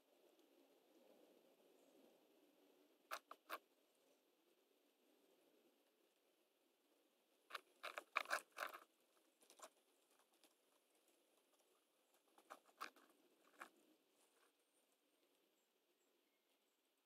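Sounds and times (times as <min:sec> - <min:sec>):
rat clicking and scratching: 0:03.1 - 0:03.6, 0:07.5 - 0:14.5.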